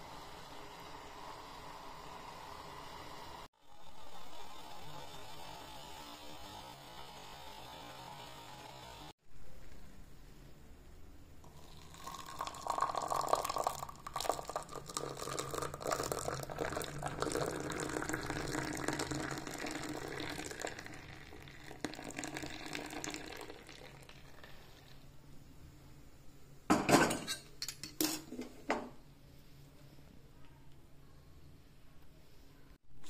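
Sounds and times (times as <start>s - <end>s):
milk pouring and splashing: 11.5s - 24.9s.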